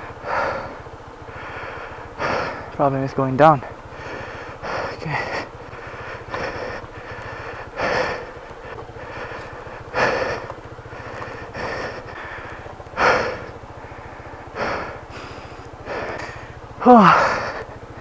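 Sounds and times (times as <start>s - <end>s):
person breathing heavily: 0.0s - 2.8s, 3.6s - 18.0s
scooter engine running at low revs: 0.0s - 18.0s.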